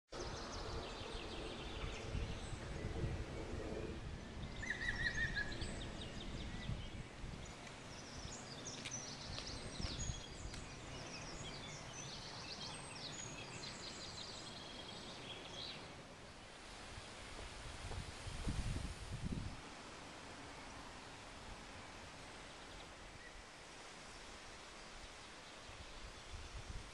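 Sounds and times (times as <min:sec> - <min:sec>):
small birds chirping and trilling: 0:00.2 - 0:17.3.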